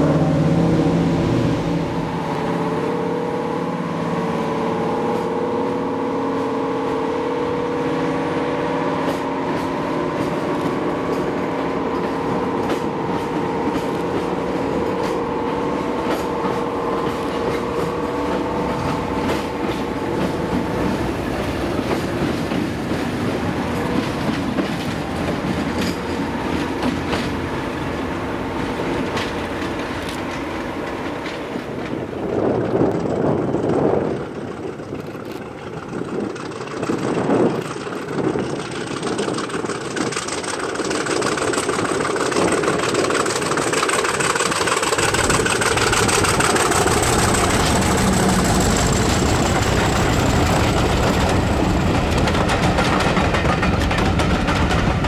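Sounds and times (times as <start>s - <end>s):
diesel engine drone: 0.0s - 21.9s, 41.2s - 54.9s
train wheels clicking over rail joints: 9.0s - 55.0s.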